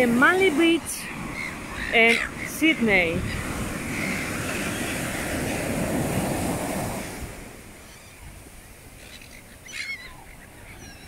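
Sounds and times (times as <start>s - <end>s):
ocean surf breaking: 0.0s - 9.2s
gull calling: 1.3s - 5.0s, 9.0s - 11.0s.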